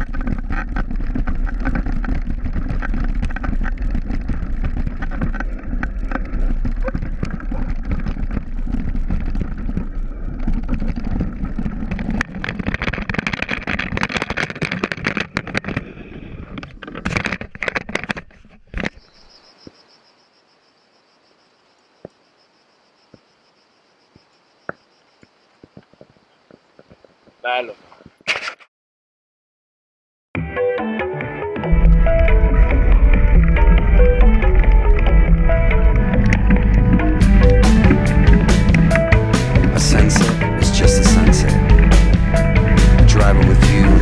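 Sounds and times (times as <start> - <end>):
wind rumble on microphone: 0.0 - 18.0, 31.7 - 44.0
bike rattling and knocking: 0.0 - 19.0, 31.7 - 44.0.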